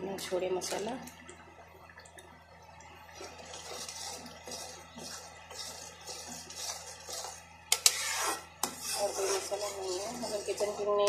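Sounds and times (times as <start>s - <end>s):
steady low hum: 0.0s - 11.0s
steel spoon scraping pan: 3.5s - 11.0s.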